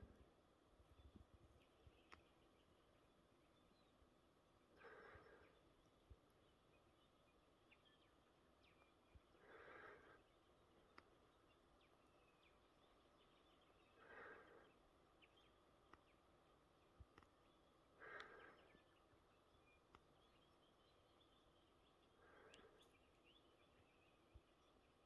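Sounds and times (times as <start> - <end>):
faint bird chirps: 0.0 - 25.0
person breathing softly: 4.7 - 5.7, 9.2 - 11.2, 13.3 - 15.0, 17.9 - 19.2, 22.0 - 23.4.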